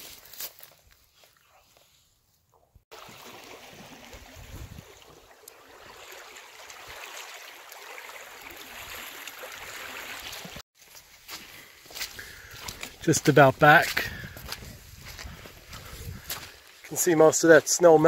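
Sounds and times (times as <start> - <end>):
stream flowing: 2.9 - 13.9.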